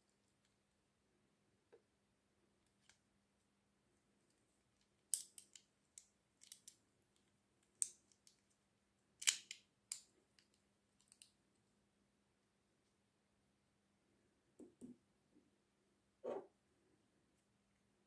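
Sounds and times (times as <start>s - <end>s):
plastic toy clicks and snaps: 5.1s - 5.6s, 9.2s - 10.0s.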